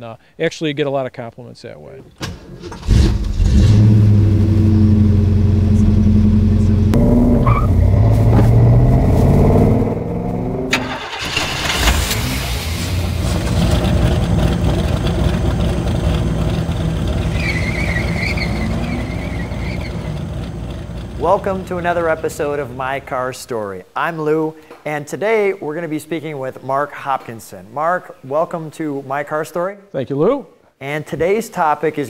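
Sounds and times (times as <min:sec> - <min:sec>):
car engine revving: 0:02.6 - 0:22.8.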